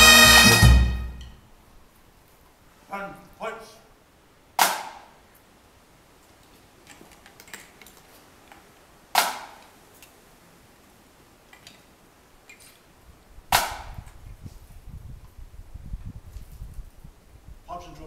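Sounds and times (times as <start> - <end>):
loud sharp cracks: 4.6 - 5.1, 9.1 - 9.7, 13.5 - 14.0.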